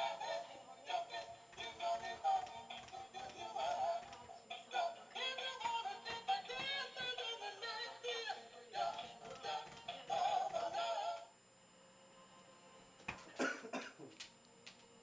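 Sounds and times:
toy playing sung tune: 0.0s - 11.3s.

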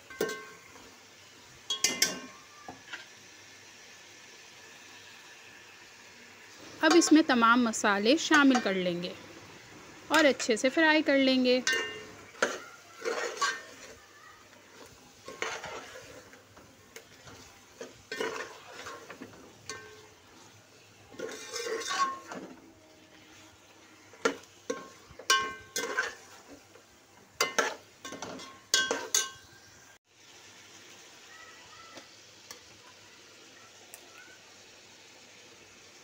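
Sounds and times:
meat frying: 0.0s - 36.0s
spoon clinking against pot: 0.1s - 0.6s, 1.7s - 2.3s, 11.6s - 13.9s, 24.2s - 26.2s, 27.4s - 29.5s
metal spoon scraping a pot: 11.6s - 14.0s, 14.7s - 16.4s, 17.0s - 20.4s, 21.1s - 22.6s, 24.2s - 26.7s, 27.4s - 29.5s.

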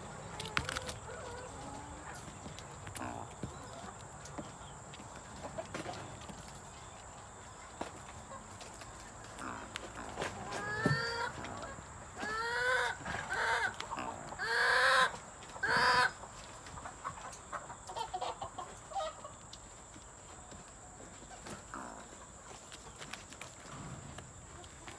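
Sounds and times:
junglefowl calling: 10.3s - 16.2s.

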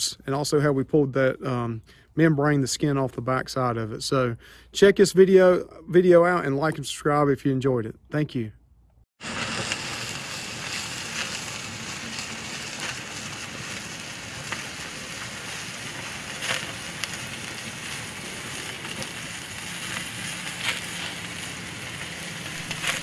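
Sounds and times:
wood fire crackling: 9.2s - 23.0s.

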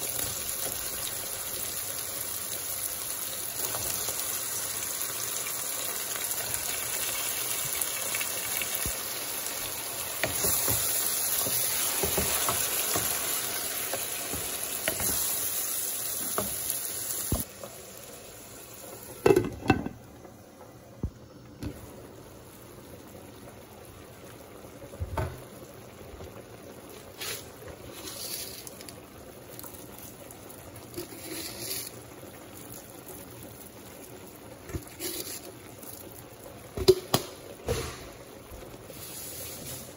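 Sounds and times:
meat sizzling in a pan: 0.0s - 19.3s, 26.7s - 39.9s
bubbling simmer with pops: 3.4s - 15.4s, 18.6s - 27.9s, 28.6s - 38.9s.

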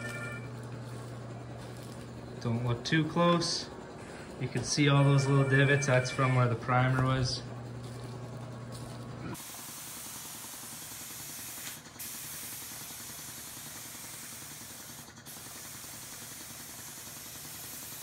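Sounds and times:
spray gun hissing: 9.4s - 18.0s.

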